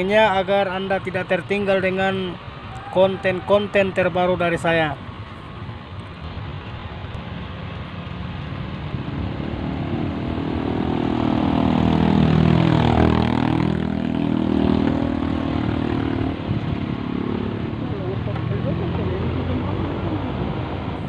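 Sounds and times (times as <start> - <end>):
vehicle engine passing by: 6.8 - 21.0.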